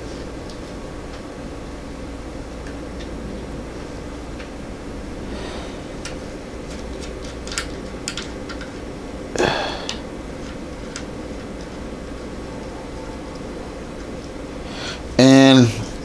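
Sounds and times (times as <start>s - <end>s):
steady low hum: 0.0s - 16.0s
metal scrape: 5.2s - 6.3s
metal parts clicking: 6.9s - 8.8s.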